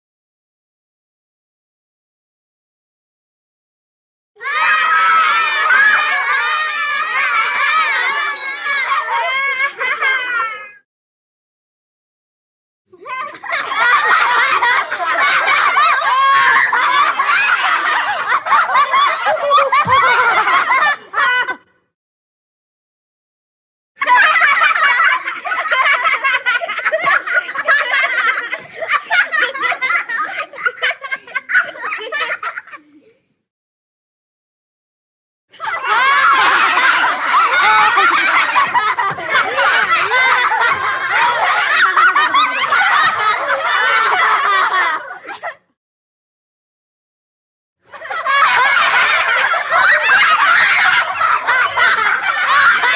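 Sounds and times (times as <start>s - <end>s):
children laughing: 4.4s - 10.8s, 13.0s - 21.9s, 24.0s - 33.3s, 35.5s - 45.8s, 47.9s - 52.9s.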